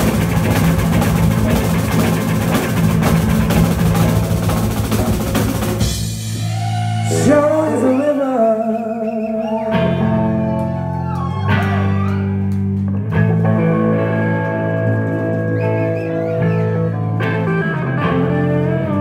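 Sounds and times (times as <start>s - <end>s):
drums playing: 0.0s - 8.1s
guitar and bass chords: 0.0s - 19.0s
person singing: 6.4s - 10.7s.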